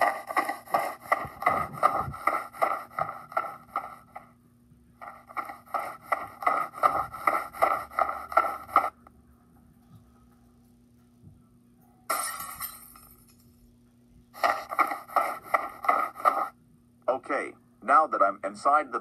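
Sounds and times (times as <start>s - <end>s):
cartoon footstep taps: 0.0s - 4.2s, 5.0s - 9.0s, 14.4s - 16.5s.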